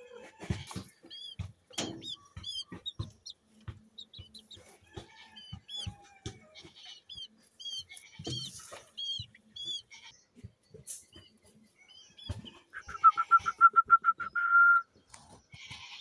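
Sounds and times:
chicks peeping: 0.0s - 13.6s
scratching and rustling in straw: 6.6s - 10.1s.

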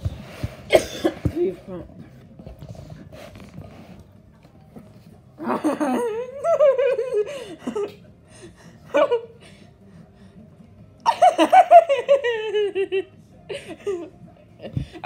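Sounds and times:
person laughing: 5.4s - 8.0s.

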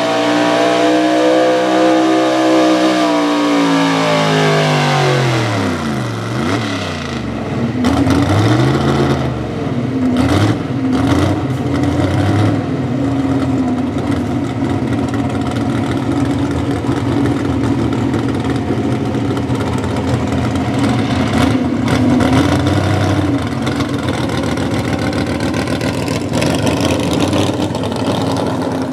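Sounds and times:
truck engine idling: 12.6s - 28.9s.

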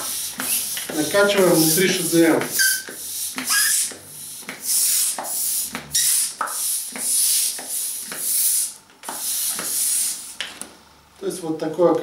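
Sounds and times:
hand pump rush of air: 1.5s - 10.4s.

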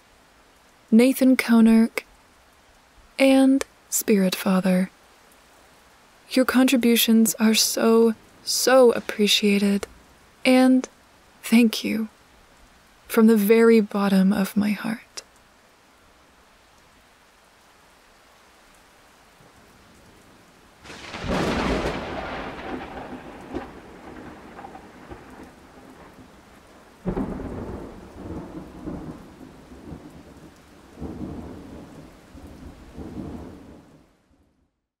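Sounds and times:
steady rain: 0.0s - 34.9s
low thunder rumbles: 19.5s - 34.0s
thunderclaps: 20.8s - 33.9s.

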